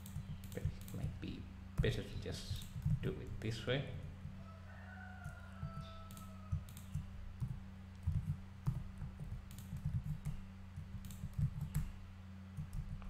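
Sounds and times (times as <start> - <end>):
keyboard and mouse clicking: 0.0 - 1.1, 1.8 - 3.0, 5.7 - 12.0
steady low hum: 0.0 - 13.0.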